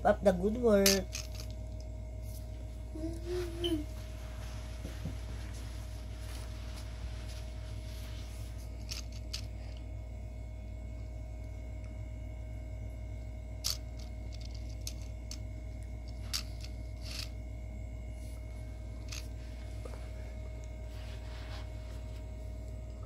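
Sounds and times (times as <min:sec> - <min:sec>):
steady low hum: 0:00.0 - 0:23.0
plastic pieces clicking and scraping: 0:01.0 - 0:01.5, 0:16.2 - 0:17.3.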